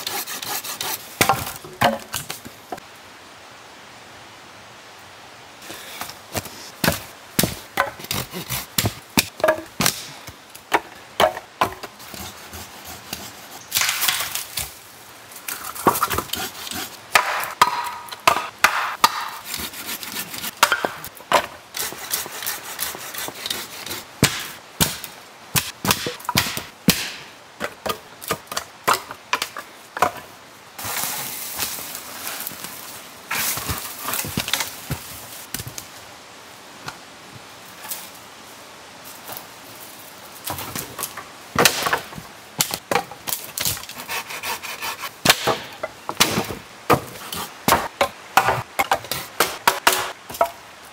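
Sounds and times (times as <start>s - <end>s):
sticks and rocks knocking: 1.2s - 2.8s, 6.0s - 12.0s, 17.1s - 19.7s, 20.4s - 21.6s, 32.5s - 35.8s.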